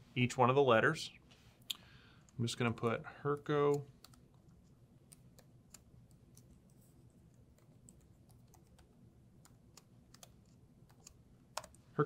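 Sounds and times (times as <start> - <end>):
keyboard typing: 3.6 - 11.8.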